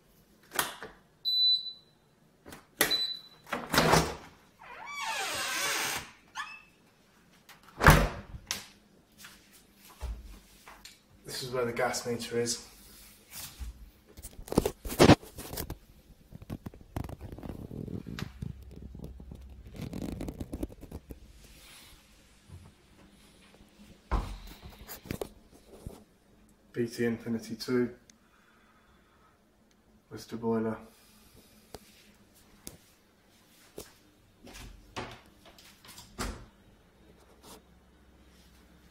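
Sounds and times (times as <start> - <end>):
camera handling scraping and rustling: 14.2 - 15.8.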